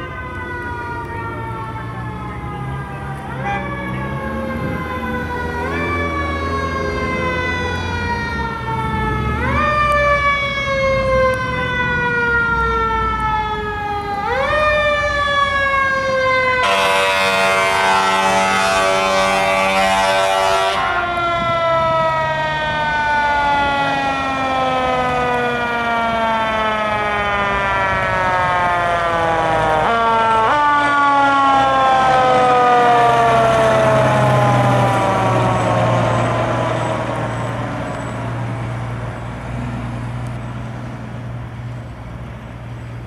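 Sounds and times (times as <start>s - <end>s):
fire engine siren wailing: 0.0s - 43.0s
air horn: 16.6s - 21.0s.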